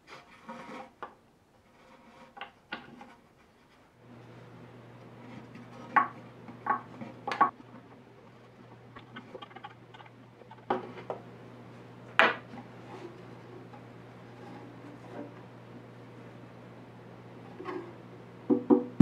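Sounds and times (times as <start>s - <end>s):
steady low hum: 3.8s - 19.0s
tool and bolts knocking inside guitar: 18.5s - 19.0s.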